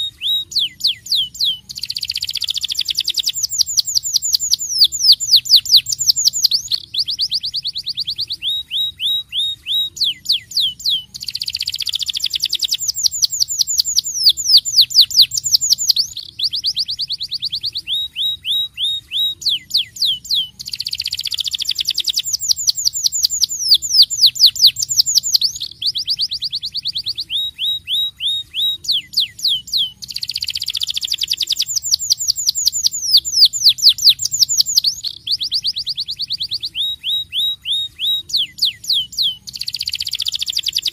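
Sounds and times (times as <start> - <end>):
canary singing trills: 0.0 - 40.9.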